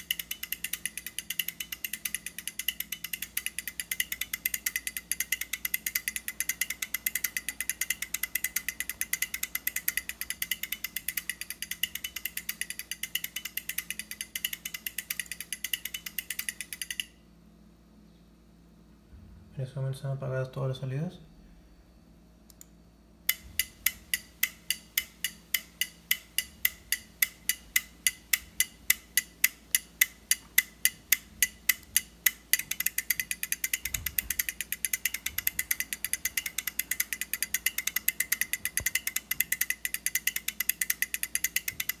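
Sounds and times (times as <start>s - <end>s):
relays clicking: 0.0s - 17.1s, 23.3s - 42.0s.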